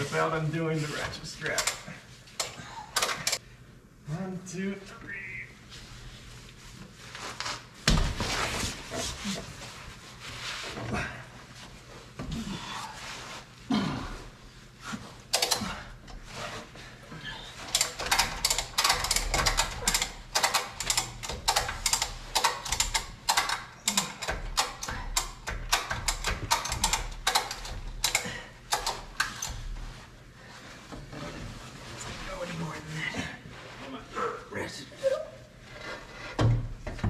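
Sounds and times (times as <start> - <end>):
ratchet strap clicking: 17.7 - 29.6.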